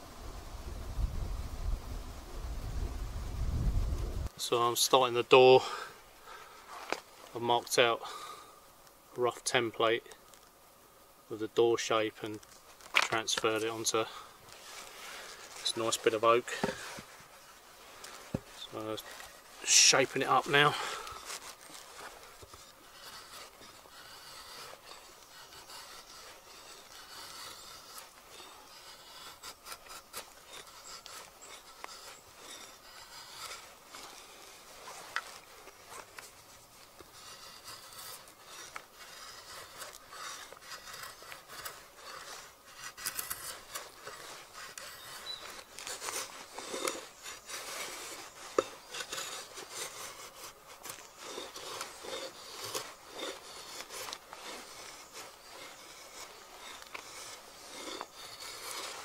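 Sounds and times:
drawknife scraping wood: 0:12.2 - 0:59.0.

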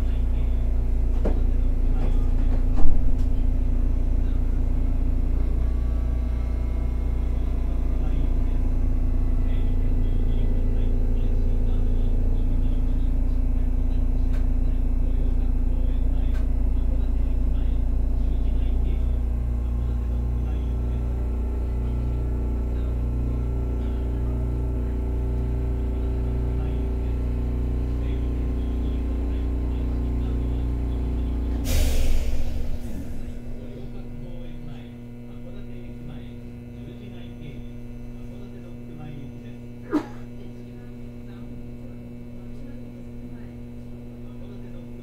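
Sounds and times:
loud hissing burst: 0:31.6 - 0:34.2.

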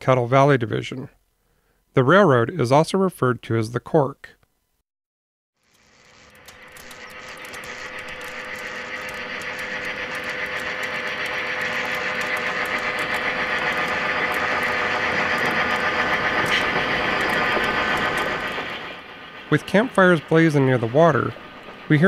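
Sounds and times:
train wheels clicking: 0:06.2 - 0:22.0
freight train rumbling: 0:07.5 - 0:22.0.

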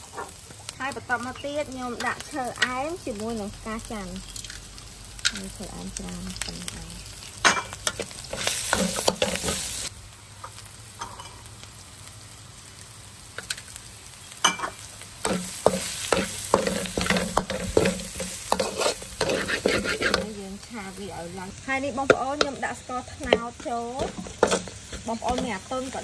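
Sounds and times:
paste sizzling in oil: 0:00.0 - 0:26.0
metal spatula scraping wok: 0:06.4 - 0:09.9, 0:14.5 - 0:20.5, 0:22.4 - 0:26.0.

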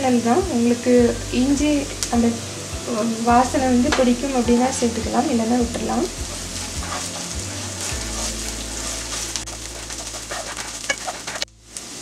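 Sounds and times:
food sizzling in hot oil: 0:00.0 - 0:12.0
wooden spatula scraping and tapping: 0:05.6 - 0:11.5.

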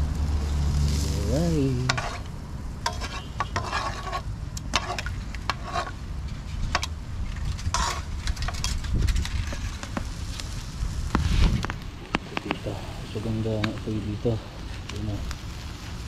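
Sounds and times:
steady low rumble: 0:00.0 - 0:03.0, 0:03.9 - 0:16.0
food sizzling on a grill: 0:00.0 - 0:06.7, 0:07.6 - 0:16.0
utensils clicking and scraping: 0:01.8 - 0:06.0, 0:06.7 - 0:09.9.

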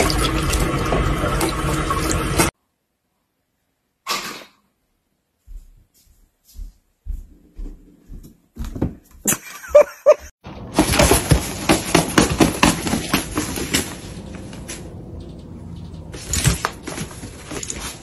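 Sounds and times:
cat rustling in nylon lining: 0:10.8 - 0:14.8, 0:16.2 - 0:18.0.

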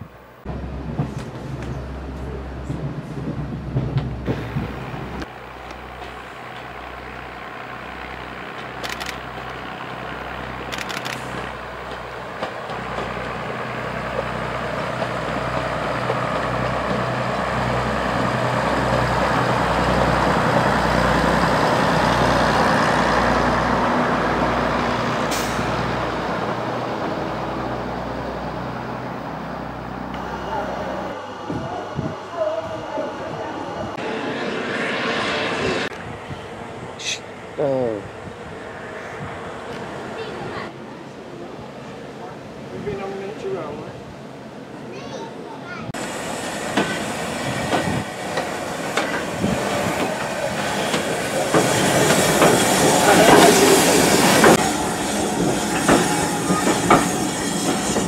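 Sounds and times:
diesel train passing: 0:00.0 - 0:58.0.

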